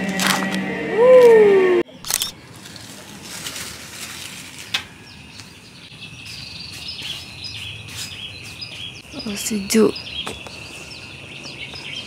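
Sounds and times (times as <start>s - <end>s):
background music: 0.0s - 1.8s.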